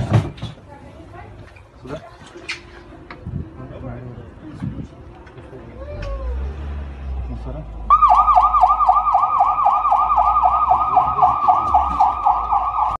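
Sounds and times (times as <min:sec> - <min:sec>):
ambulance siren yelping: 0:07.9 - 0:13.0.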